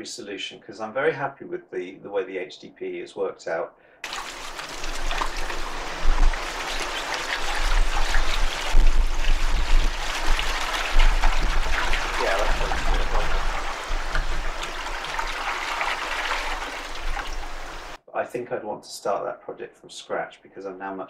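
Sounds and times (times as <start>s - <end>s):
water pouring into plastic tank: 4.0s - 18.0s.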